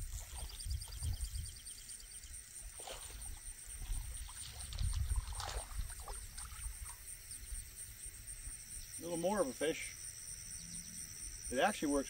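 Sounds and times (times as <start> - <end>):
crickets droning: 0.0 - 12.0
water splashing: 2.7 - 7.1.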